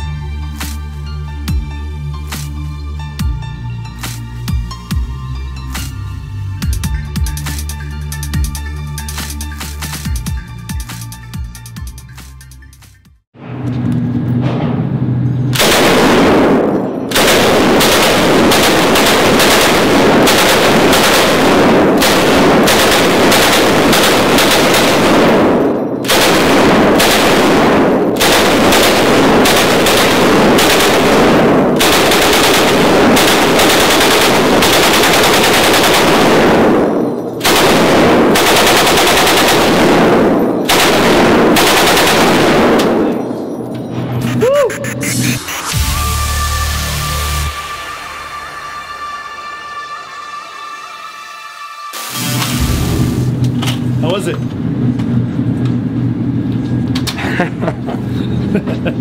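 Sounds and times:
machine gun firing bursts: 15.6 - 43.3.

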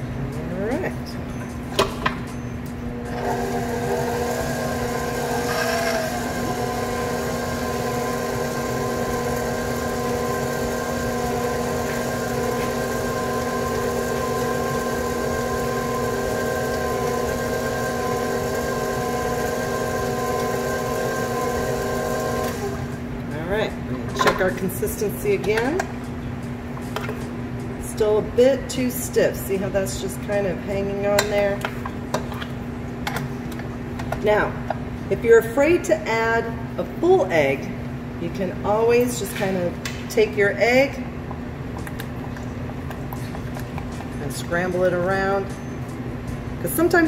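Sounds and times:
stand mixer motor whine: 3.1 - 23.1.

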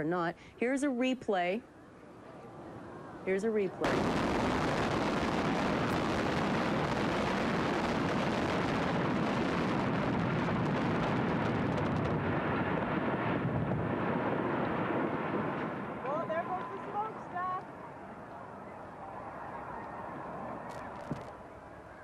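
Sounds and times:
demolition charges exploding: 3.8 - 15.8
building collapse rumbling: 3.8 - 16.8.

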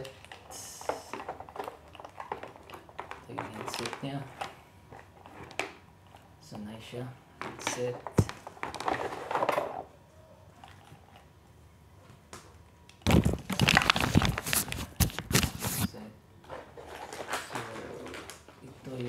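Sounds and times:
packaging rustling and crackling: 0.0 - 5.8, 7.8 - 9.9, 13.0 - 15.9, 16.5 - 19.0.

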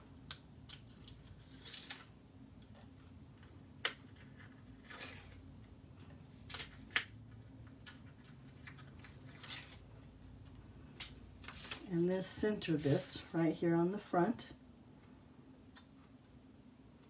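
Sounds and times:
paper rustling: 4.0 - 7.1, 7.8 - 10.2, 11.0 - 11.9.

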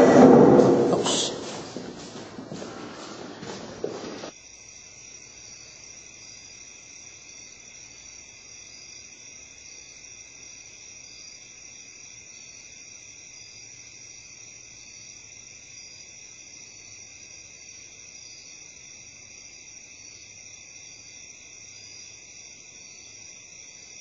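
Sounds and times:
shuffling and knocks: 0.0 - 4.3
night insects chirping: 4.3 - 24.0.

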